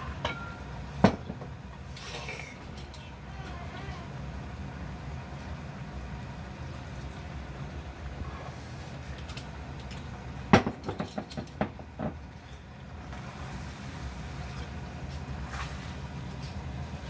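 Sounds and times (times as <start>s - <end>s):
spatula knocking and scraping wok: 10.6s - 12.2s.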